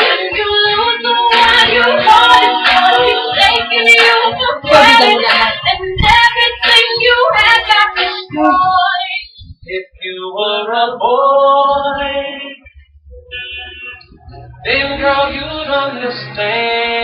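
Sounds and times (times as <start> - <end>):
woman singing pop ballad: 0.0 - 9.4.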